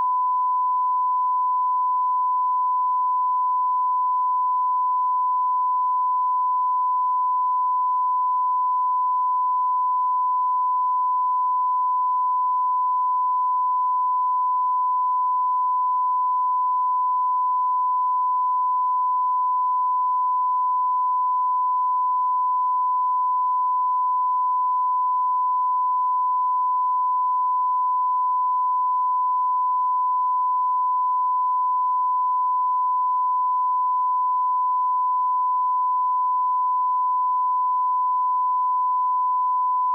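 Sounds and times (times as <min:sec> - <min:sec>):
steady sine test tone: 0:00.0 - 0:39.9.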